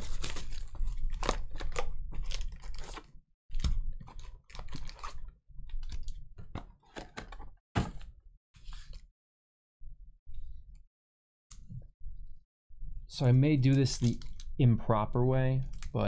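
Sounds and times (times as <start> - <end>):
plastic shrink wrap crinkling: 0.0 - 6.2.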